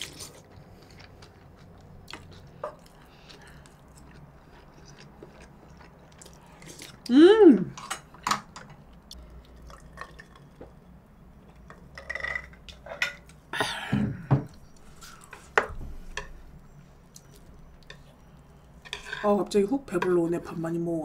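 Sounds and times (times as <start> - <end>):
chewing: 0.0 - 7.1, 9.0 - 10.7.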